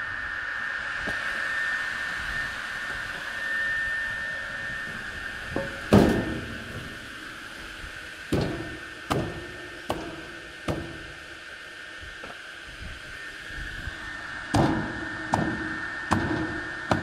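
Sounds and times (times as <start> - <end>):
circular saw whining: 0.0 - 17.0
loud clunk: 5.6 - 6.9
sharp knocks: 8.3 - 11.0.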